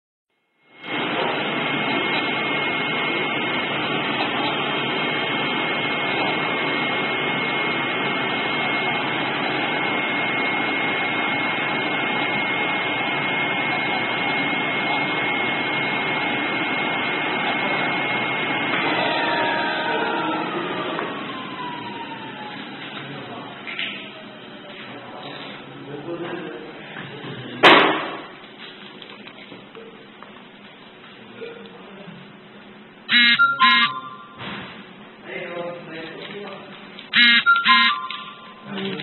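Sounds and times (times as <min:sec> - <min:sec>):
high whine: 0:00.6 - 0:23.2, 0:33.1 - 0:34.6.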